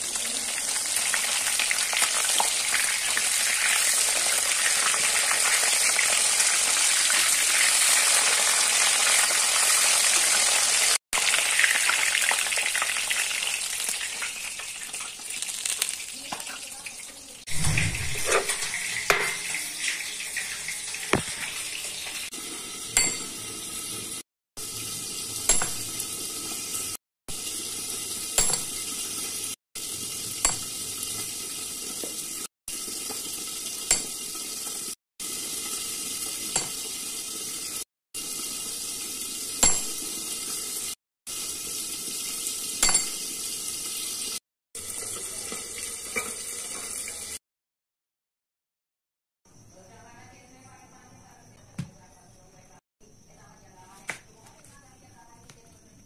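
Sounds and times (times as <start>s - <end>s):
kitchen hiss: 0.0s - 47.4s
dishes clinking: 18.0s - 19.6s, 23.0s - 23.4s, 25.5s - 26.0s, 28.4s - 28.9s, 30.4s - 30.8s, 33.9s - 34.2s, 36.5s - 36.8s, 42.8s - 43.2s, 46.1s - 47.0s.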